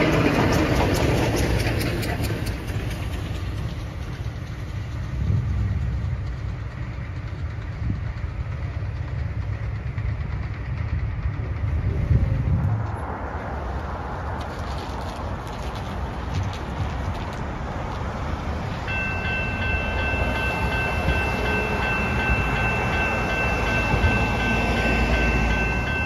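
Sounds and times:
train passing: 0:00.0 - 0:26.0.

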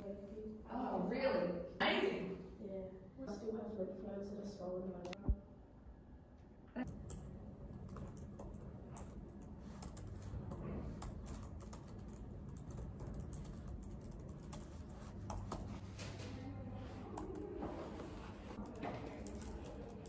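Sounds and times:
low steady hum: 0:00.0 - 0:20.0
laptop keyboard typing: 0:06.8 - 0:15.9, 0:16.9 - 0:20.0.

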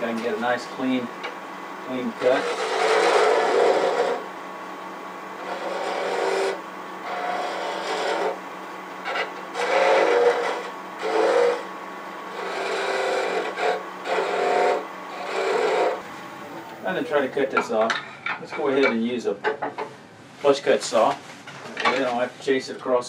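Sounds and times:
chisel scraping spinning wood: 0:00.0 - 0:04.4, 0:05.3 - 0:19.0
lathe humming: 0:00.0 - 0:18.2.

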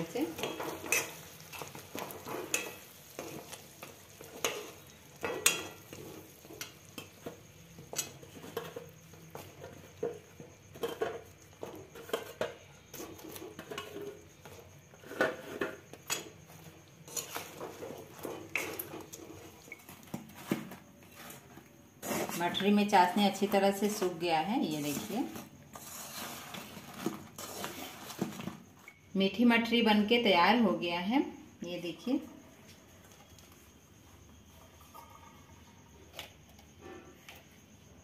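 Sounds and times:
metal spoon scraping a metal pan: 0:00.1 - 0:20.6, 0:22.0 - 0:22.6, 0:23.4 - 0:28.2.

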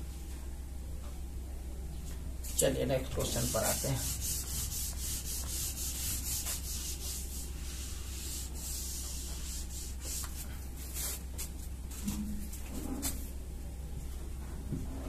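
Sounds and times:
duster wiping a whiteboard: 0:02.5 - 0:13.3.

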